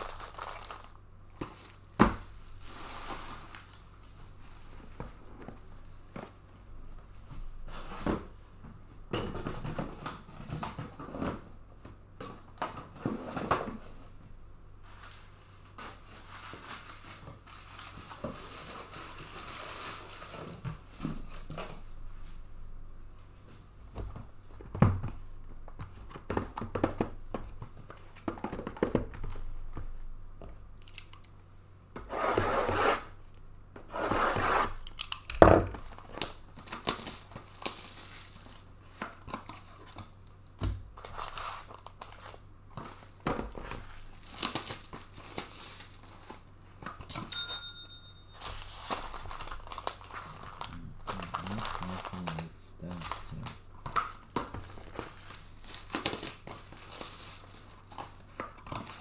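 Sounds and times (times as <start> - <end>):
packaging tearing and crinkling: 0.0 - 3.8, 34.6 - 38.7, 41.0 - 46.5, 48.4 - 59.0.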